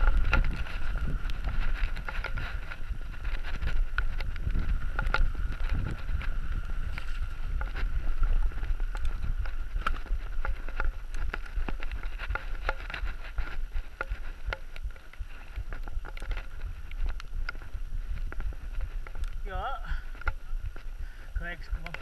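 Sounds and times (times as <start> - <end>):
bike knocking over stones: 0.0 - 20.5
bike tyres on gravel: 0.0 - 22.0
wind rumble on microphone: 0.0 - 22.0.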